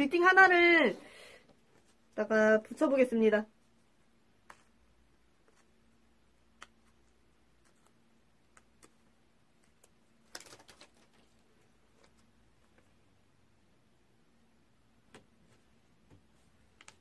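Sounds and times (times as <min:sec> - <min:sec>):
faint steady hum: 0:00.0 - 0:17.0
soft paper clicks: 0:06.5 - 0:12.3, 0:16.7 - 0:17.0.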